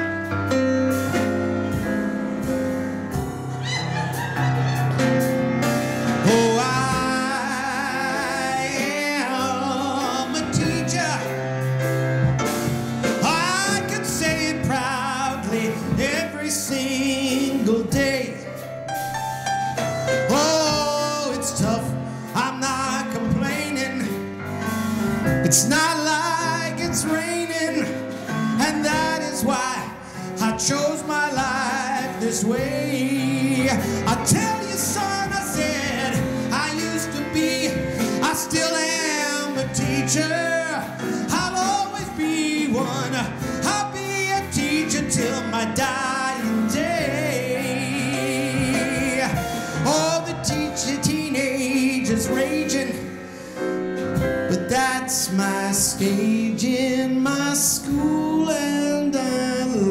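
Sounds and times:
live band playing: 0.0 - 59.9
man singing: 6.0 - 12.2, 12.9 - 18.7, 20.1 - 59.9.

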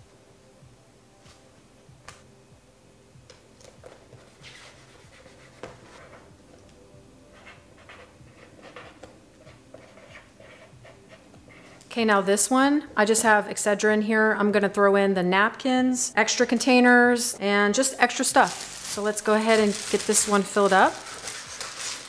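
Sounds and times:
marker pen scratching: 7.3 - 11.8.

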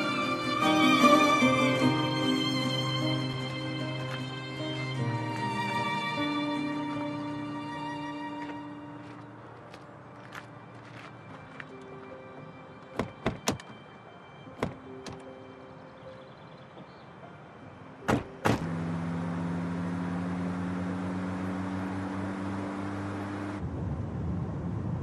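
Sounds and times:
soft background music: 0.0 - 23.6
car door clicking and shutting: 12.9 - 13.8, 14.6 - 15.3, 18.1 - 18.7
car engine humming: 18.0 - 23.6.

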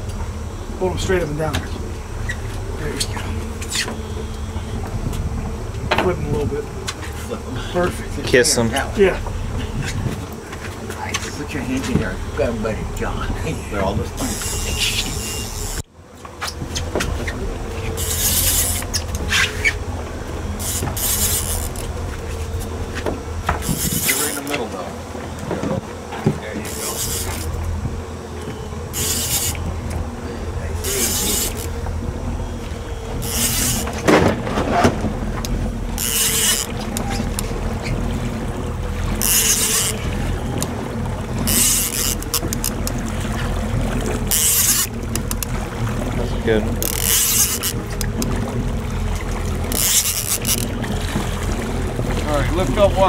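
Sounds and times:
boat engine humming: 0.0 - 53.0
wind and water hiss: 0.0 - 53.0
faint clicks: 44.3 - 45.6.

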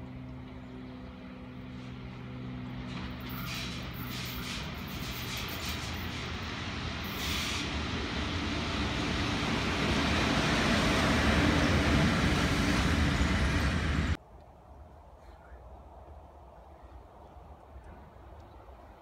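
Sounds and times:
locomotive motor hum: 0.0 - 14.2
train wheels rumbling on rail: 0.4 - 14.2.

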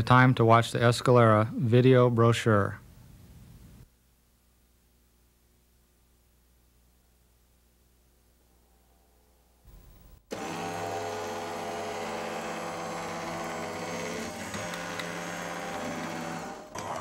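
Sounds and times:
electric motor whine: 9.7 - 17.0.

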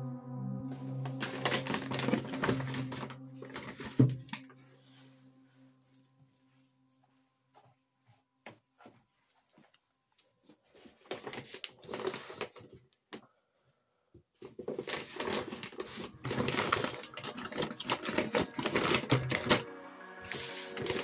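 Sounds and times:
music: 0.0 - 8.3, 15.2 - 21.0
mesh bag rustling and crinkling: 0.7 - 5.5, 10.5 - 12.8, 14.4 - 21.0.

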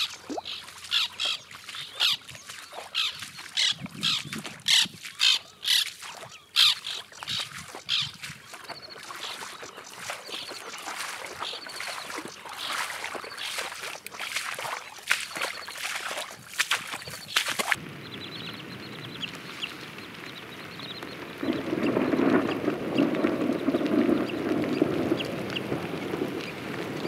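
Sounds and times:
birds calling: 0.0 - 27.0
person wading through water: 0.0 - 27.0.

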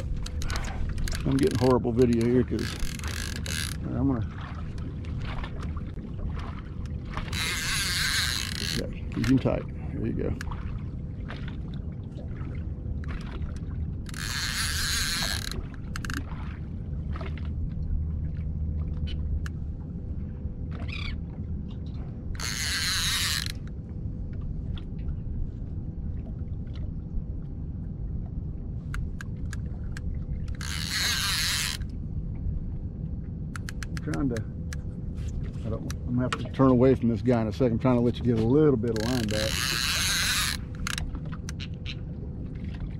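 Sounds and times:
small clicks: 0.0 - 3.8, 33.5 - 34.8
fishing reel whirring: 0.0 - 3.9, 7.2 - 9.6, 14.0 - 16.3, 22.3 - 23.8, 30.4 - 31.9, 38.9 - 42.0
low rumble: 0.0 - 22.6, 23.3 - 42.9.

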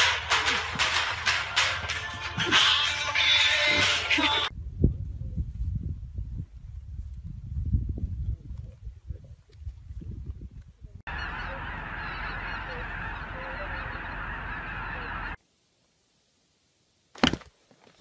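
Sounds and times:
geese honking: 11.1 - 15.4.

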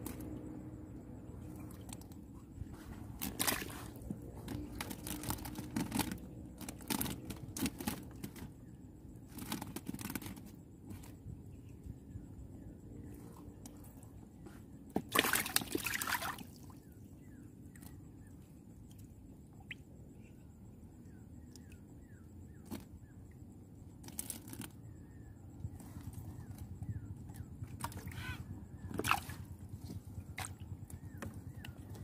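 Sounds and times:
water sloshing and splashing: 0.0 - 11.2, 13.0 - 17.0, 25.7 - 32.0.

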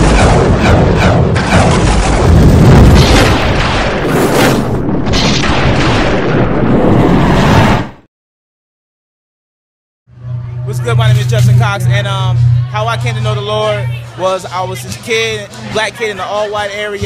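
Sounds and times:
deep booming and rumbling: 0.0 - 8.0.

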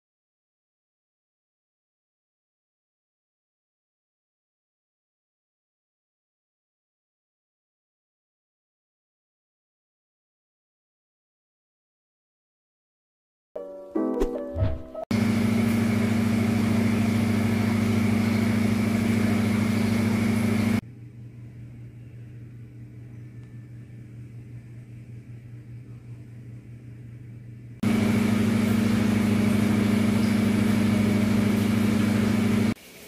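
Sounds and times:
low machine hum: 15.1 - 32.8.

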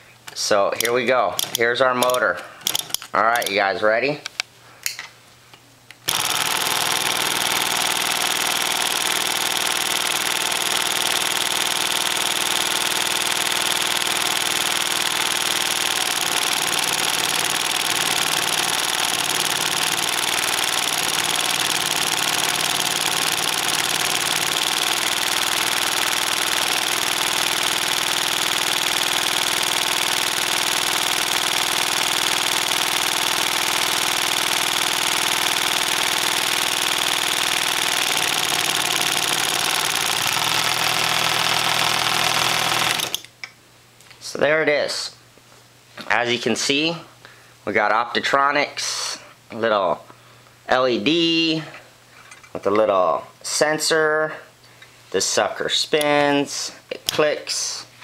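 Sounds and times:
magnetic engine clicking clatter: 0.8 - 3.6, 6.1 - 43.3.

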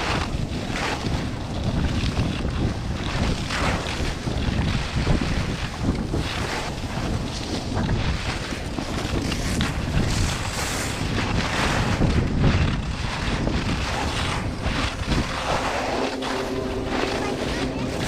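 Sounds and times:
wind buffeting microphone: 0.0 - 18.0
skis scraping icy snow: 6.1 - 18.0.

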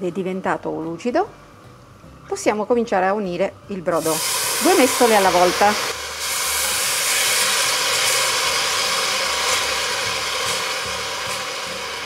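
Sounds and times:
broth sizzling and hissing: 4.0 - 12.0.

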